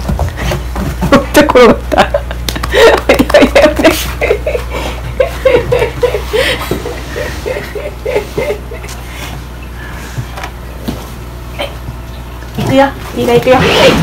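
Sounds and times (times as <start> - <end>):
person laughing: 1.0 - 9.3.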